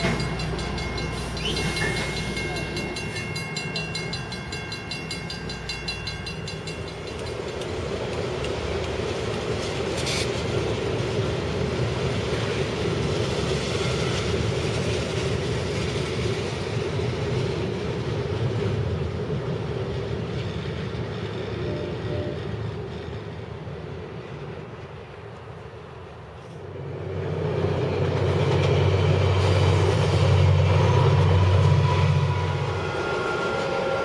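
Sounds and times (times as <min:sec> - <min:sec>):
railroad crossing bell ringing: 0:00.0 - 0:08.6, 0:21.6 - 0:22.7
freight train rumbling over bridge: 0:00.0 - 0:34.0.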